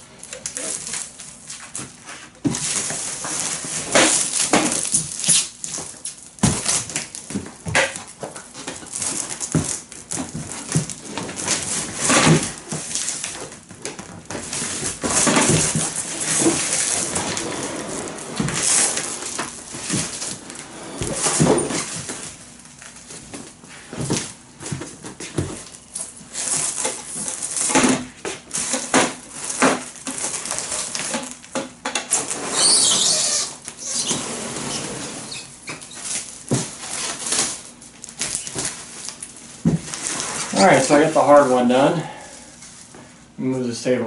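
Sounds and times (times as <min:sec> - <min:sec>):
plastic wrap crinkling: 0:00.2 - 0:34.2, 0:34.8 - 0:43.0
cardboard box scraping and knocking: 0:14.3 - 0:22.2.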